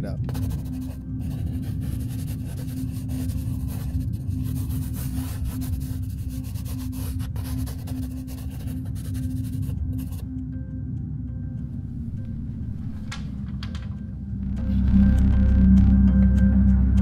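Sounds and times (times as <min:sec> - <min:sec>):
pen scratching on paper: 0:00.3 - 0:10.2
loud low hum: 0:09.7 - 0:17.0.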